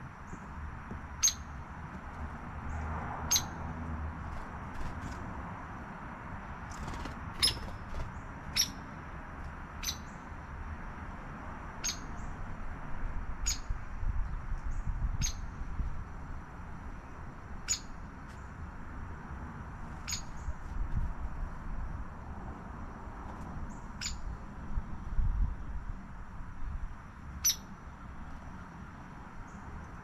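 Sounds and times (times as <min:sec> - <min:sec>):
songbird chip calls: 0:01.2 - 0:01.5, 0:03.3 - 0:03.6, 0:07.4 - 0:07.7, 0:08.5 - 0:08.8, 0:09.8 - 0:10.2, 0:11.8 - 0:12.1, 0:15.2 - 0:15.4, 0:27.4 - 0:27.7.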